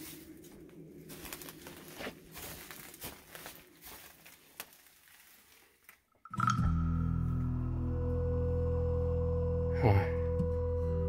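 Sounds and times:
footsteps on straw and boards: 0.0 - 6.0.

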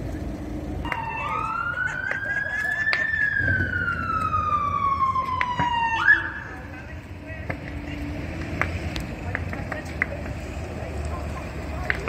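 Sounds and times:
emergency siren wailing: 0.8 - 7.1.

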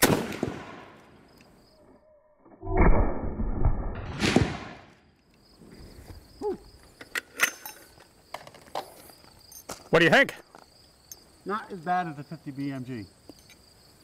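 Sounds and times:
deep rifle boom: 2.7 - 4.9.

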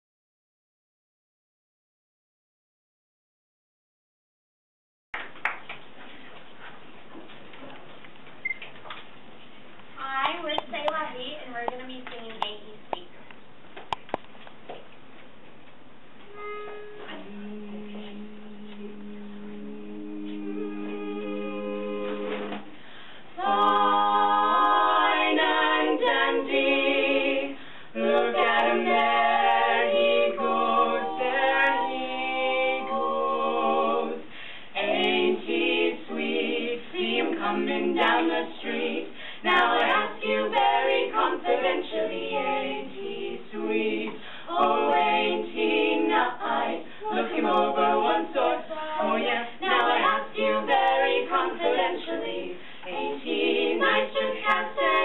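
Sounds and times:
women singing in close harmony: 19.7 - 22.7, 23.3 - 55.0.

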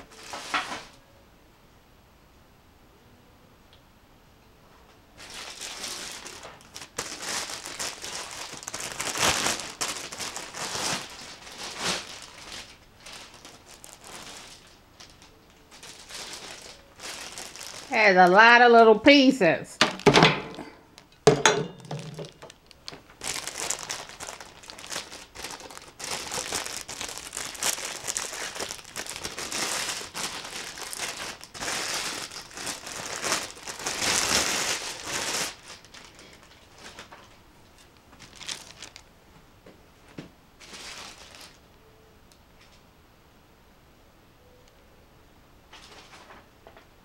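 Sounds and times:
plastic film crinkling: 0.0 - 1.0, 5.2 - 18.6, 21.8 - 39.1, 40.6 - 41.8.

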